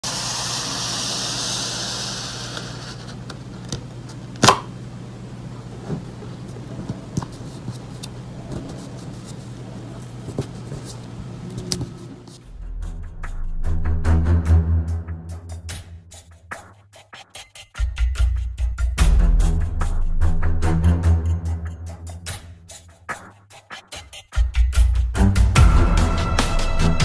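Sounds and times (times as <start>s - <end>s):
steady low hum: 1.0s - 16.0s
paper sliding: 1.8s - 3.6s.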